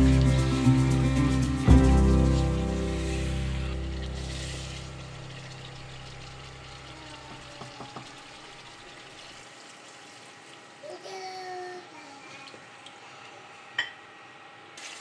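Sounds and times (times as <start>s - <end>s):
background music: 0.0s - 5.8s
water poured gurgling: 0.0s - 10.8s
wooden spoon knocking on pot: 7.3s - 8.2s.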